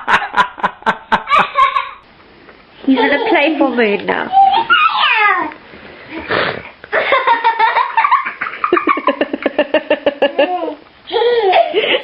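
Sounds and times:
person laughing heartily: 0.0s - 2.0s, 6.9s - 12.0s.

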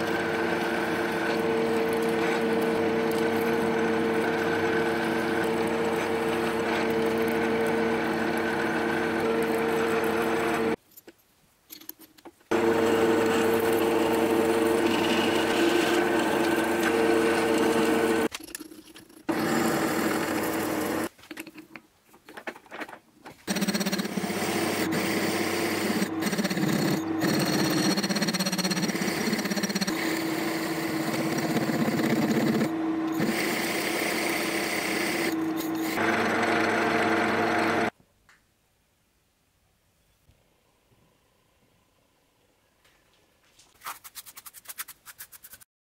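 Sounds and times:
milling machine whine: 0.0s - 10.8s, 12.5s - 18.3s, 19.3s - 21.1s, 23.5s - 37.9s
drilling into metal: 12.5s - 18.3s, 19.3s - 21.1s, 23.4s - 37.9s.

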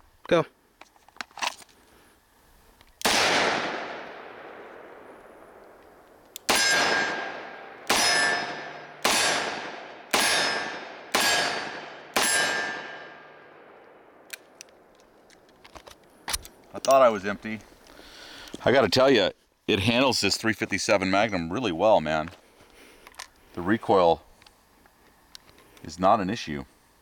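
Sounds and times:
revolver shots echoing: 3.0s - 5.6s, 6.4s - 13.4s
metallic ring of steel target: 6.5s - 13.4s.

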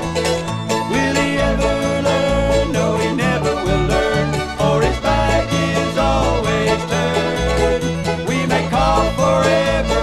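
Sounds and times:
banjo picking: 0.0s - 10.0s
bass line: 0.0s - 10.0s
fiddle: 0.0s - 10.0s
guitar: 0.0s - 10.0s.

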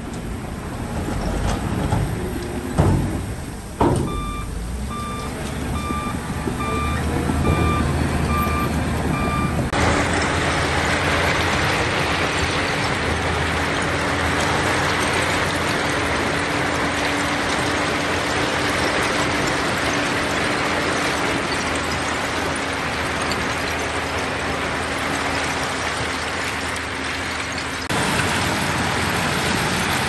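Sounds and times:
diesel engine rumble: 0.0s - 30.0s
reversing alarm beeping: 4.0s - 9.7s.

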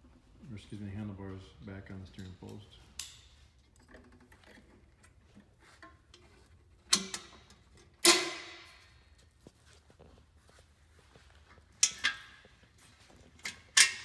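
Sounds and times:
metal exhaust parts clanking: 1.8s - 9.1s, 11.7s - 14.0s.

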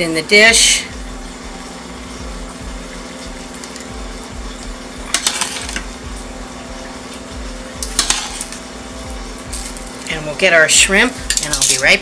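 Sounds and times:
steady low hum: 0.0s - 12.0s
metal cookware clattering: 5.1s - 5.7s, 7.9s - 8.6s, 11.3s - 12.0s.

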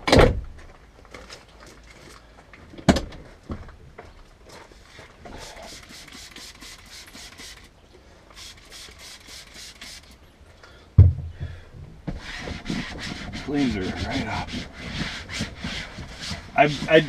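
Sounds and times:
spray bottle hissing sprays: 4.7s - 7.7s, 8.3s - 10.2s
loud thump: 11.0s - 12.2s.

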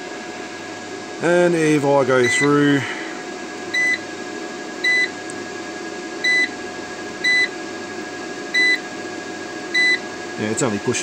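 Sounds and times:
steady hum: 0.0s - 11.0s
thin high whine: 1.2s - 4.0s.

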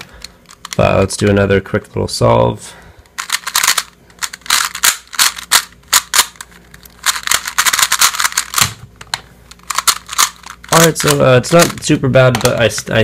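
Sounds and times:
puzzle cube plastic clicking: 3.1s - 12.9s.

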